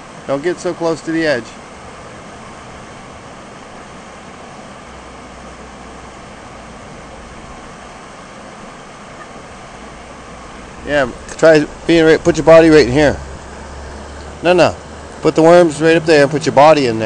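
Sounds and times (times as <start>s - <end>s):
low rumble: 9.7s - 15.2s.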